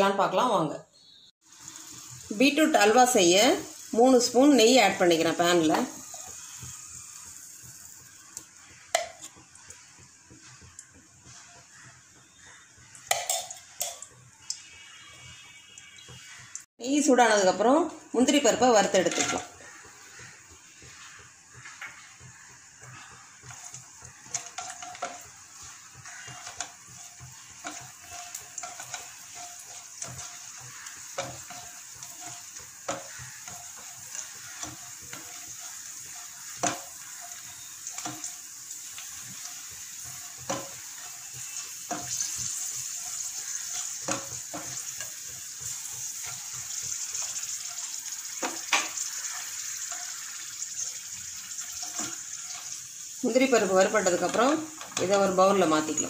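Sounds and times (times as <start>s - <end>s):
nuts sizzling in hot fat: 0.0s - 56.0s
spatula scraping a pan: 18.8s - 56.0s.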